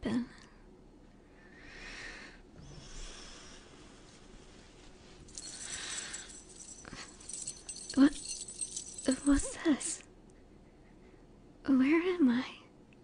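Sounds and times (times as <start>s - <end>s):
light metallic jingle: 5.2s - 10.0s
woman breathing and sighing: 5.3s - 10.0s.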